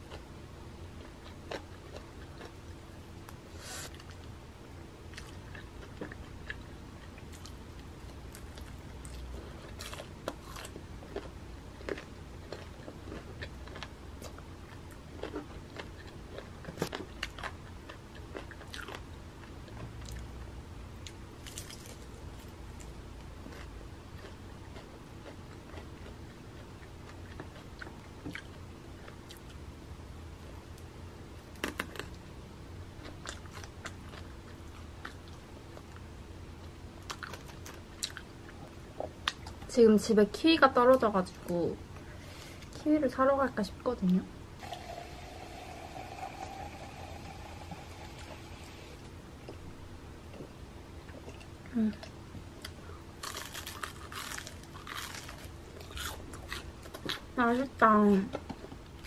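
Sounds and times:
low steady hum: 0:00.0 - 0:59.0
crispy chicken crunching: 0:53.2 - 0:57.2.

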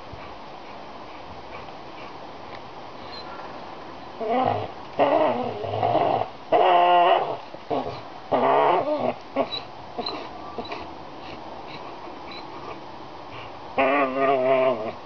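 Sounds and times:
dog growling and whining: 0:04.2 - 0:10.9, 0:13.8 - 0:15.0.

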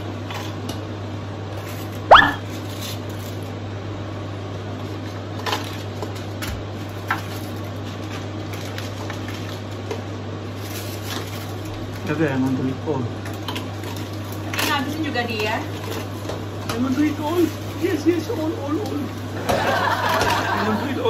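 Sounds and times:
plastic jar squeak: 0:02.1 - 0:02.4.

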